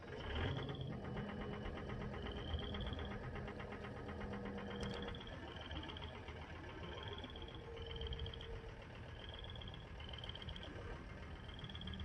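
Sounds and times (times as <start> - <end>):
low tractor engine hum: 0.0 - 12.0
frogs calling: 7.1 - 10.7, 11.3 - 12.0.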